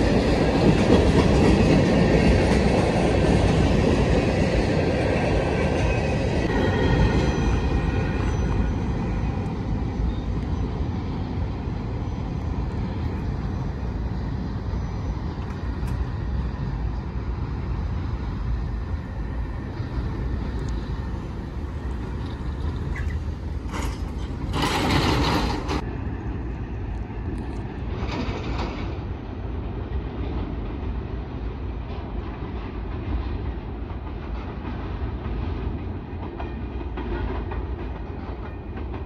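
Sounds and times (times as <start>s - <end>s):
freight train rumbling past: 0.0s - 39.0s.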